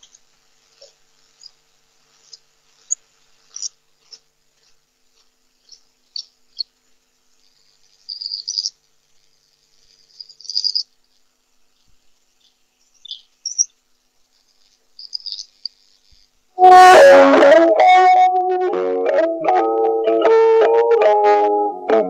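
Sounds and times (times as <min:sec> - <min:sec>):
birds chirping: 0:12.4 - 0:13.8, 0:15.0 - 0:15.6
plucked-string music: 0:16.6 - 0:22.0.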